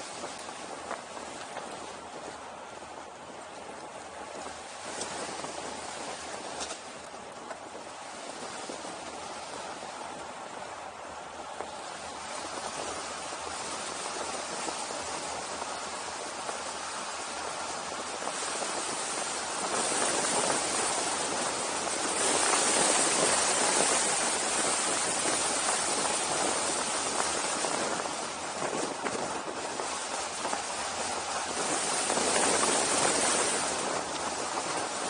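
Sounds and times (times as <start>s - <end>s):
wind on microphone: 0.0s - 35.0s.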